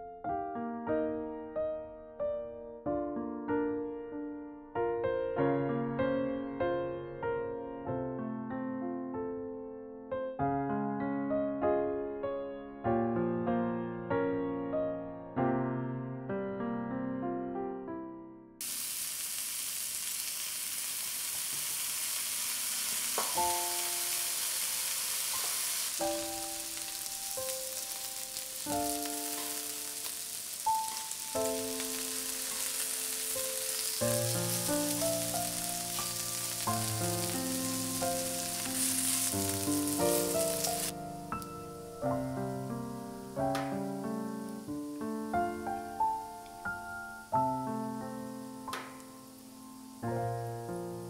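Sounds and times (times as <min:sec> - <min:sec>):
soft piano music: 0:00.0 - 0:18.6, 0:23.3 - 0:51.0
pork sizzling on a griddle: 0:18.6 - 0:51.0.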